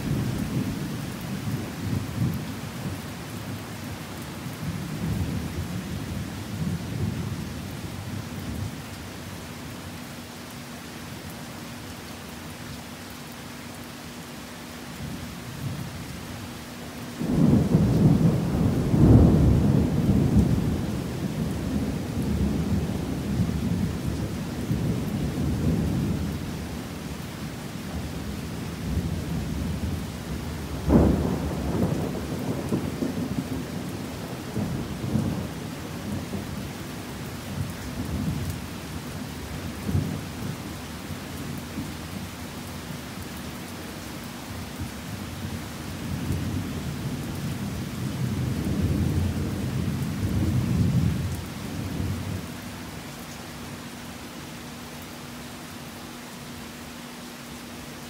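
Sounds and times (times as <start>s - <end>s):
heavy rain: 0.0s - 58.0s
thunder rumbling: 17.2s - 26.4s, 28.8s - 36.7s.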